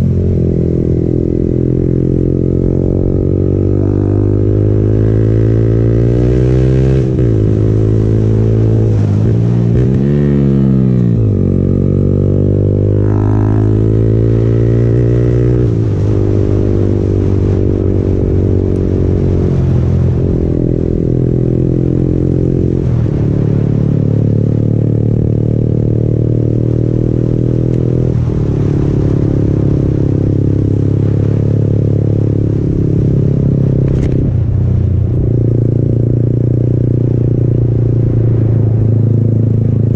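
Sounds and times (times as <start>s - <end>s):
motorcycle engine shifting gears: 24.2s - 39.9s.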